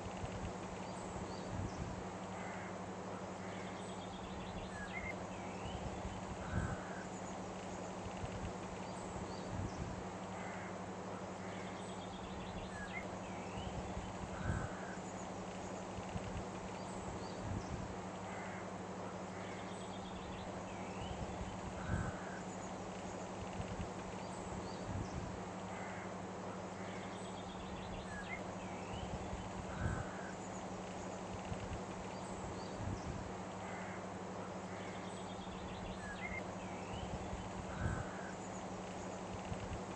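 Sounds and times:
short bird calls: 0:34.7 - 0:38.5.

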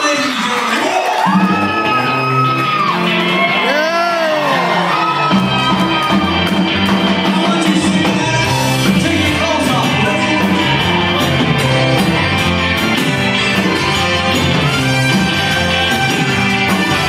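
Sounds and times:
drums keeping steady beat: 0:01.2 - 0:17.0
live rock band playing: 0:01.2 - 0:17.0
accordion: 0:07.4 - 0:17.0.

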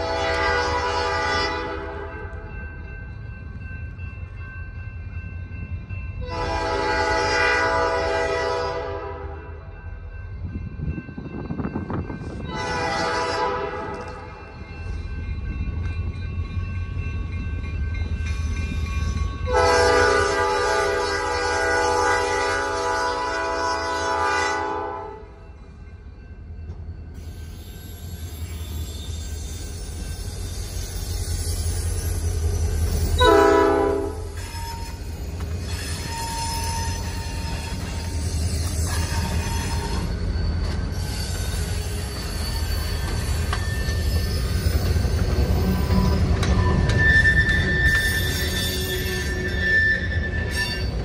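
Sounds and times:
diesel locomotive horn blasts: 0:00.0 - 0:02.3, 0:06.2 - 0:09.6, 0:12.5 - 0:14.4, 0:19.5 - 0:25.4, 0:33.2 - 0:35.0.

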